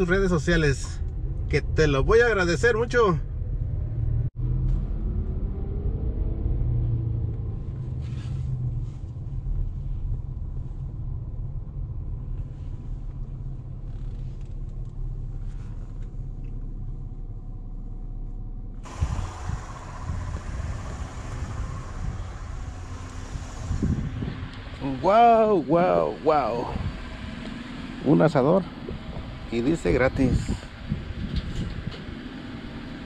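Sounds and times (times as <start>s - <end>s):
car engine and road rumble: 0.0s - 33.0s
outdoor hiss: 18.8s - 26.7s.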